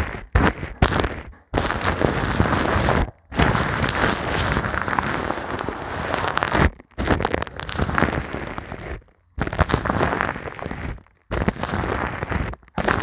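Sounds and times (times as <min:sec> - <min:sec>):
brush scratching on microphone: 0:00.0 - 0:13.0.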